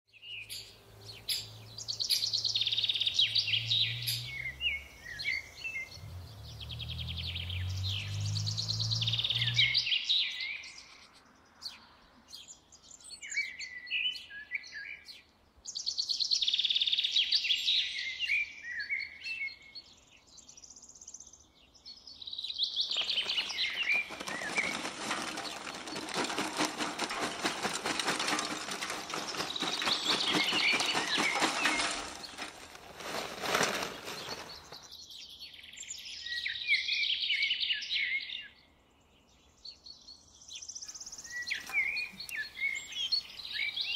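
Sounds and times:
songbirds chirping and singing: 0.1 - 43.9
charcoal rattling into a grill: 22.9 - 34.8.

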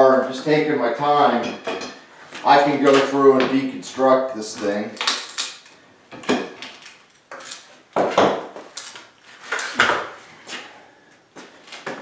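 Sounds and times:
wood cracking and creaking: 2.4 - 3.6, 4.5 - 10.2.

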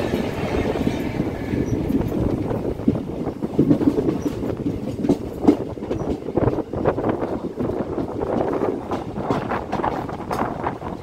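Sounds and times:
train rolling past: 0.0 - 11.0
wheel clicks over rail joints: 3.4 - 10.8.

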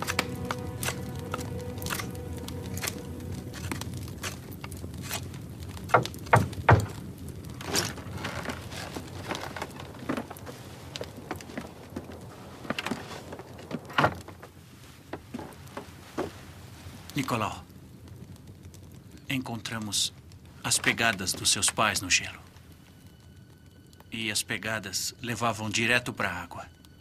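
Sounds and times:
footsteps: 7.6 - 16.6.

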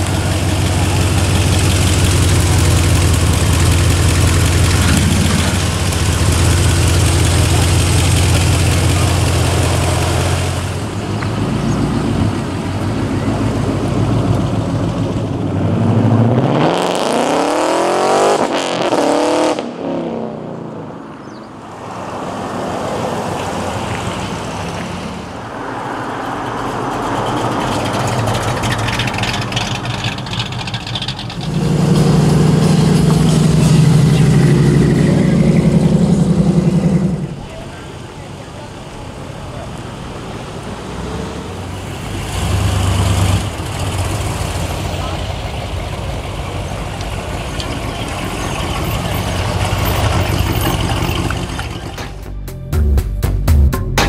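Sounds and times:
car accelerating hard: 0.0 - 20.7, 22.1 - 37.7, 39.4 - 52.2
car engines rumbling: 0.0 - 52.8.

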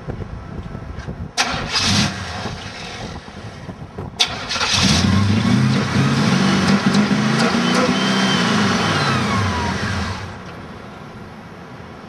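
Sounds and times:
car engine cranking and running: 1.4 - 10.6.

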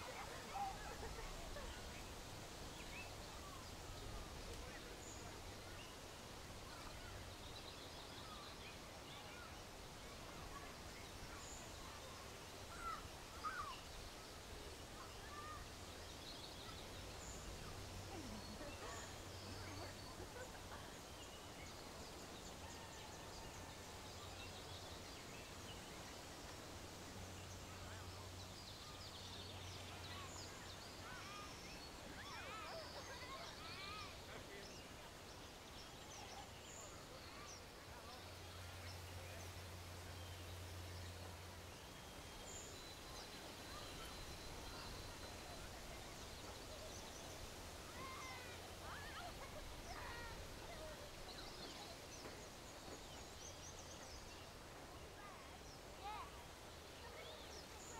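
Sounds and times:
faint hum and hiss: 0.0 - 57.9.

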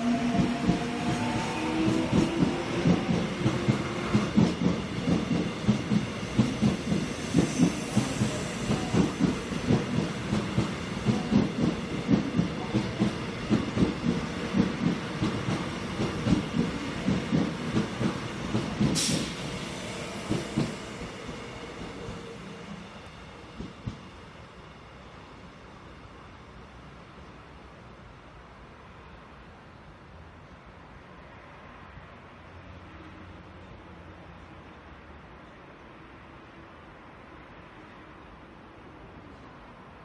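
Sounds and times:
train wheels clattering over rails: 0.2 - 24.2
brief hiss: 19.0 - 23.1.

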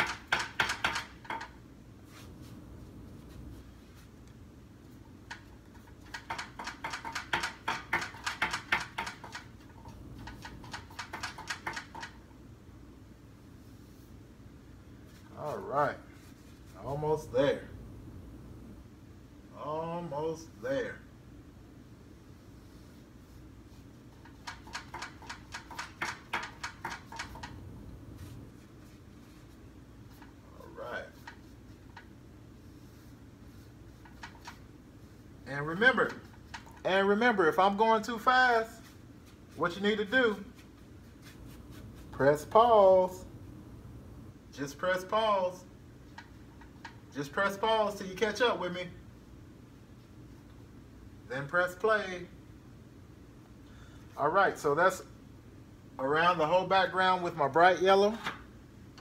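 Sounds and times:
paintbrush tapping canvas: 0.0 - 2.2, 5.3 - 12.2, 23.7 - 27.6, 31.1 - 35.2
low room hum: 0.0 - 59.0
paintbrush scrubbing on canvas: 2.0 - 4.2, 15.0 - 16.9, 22.3 - 24.4, 27.1 - 36.8, 38.7 - 42.6.

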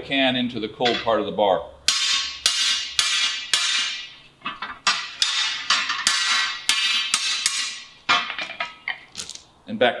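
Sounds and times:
hammer striking hot steel on anvil: 0.8 - 1.2, 1.9 - 8.8.

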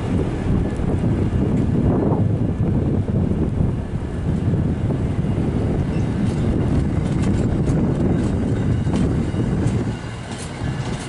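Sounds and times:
train cars rumbling: 0.0 - 11.0
wheels clicking over rail joints: 5.9 - 11.0.

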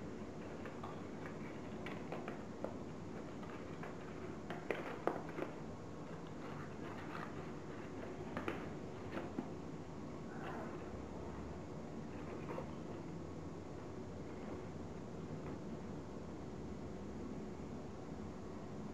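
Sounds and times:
paper crinkling and rustling: 0.4 - 9.6.

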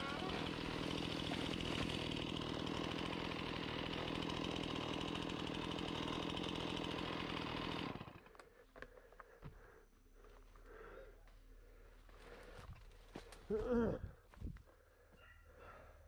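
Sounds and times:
chainsaw cutting brush: 0.0 - 8.3.

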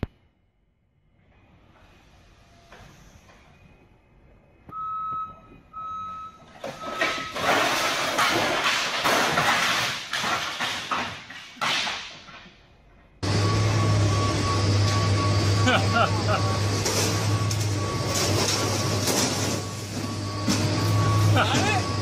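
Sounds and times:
forklift warning beeps: 4.7 - 7.5, 13.2 - 22.0
wooden pallets crashing down: 6.5 - 12.6, 16.8 - 19.7.

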